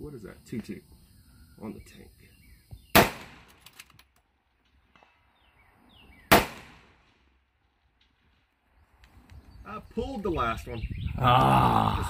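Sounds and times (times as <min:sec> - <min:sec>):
rifle shots: 0:02.9 - 0:03.8, 0:06.3 - 0:07.3.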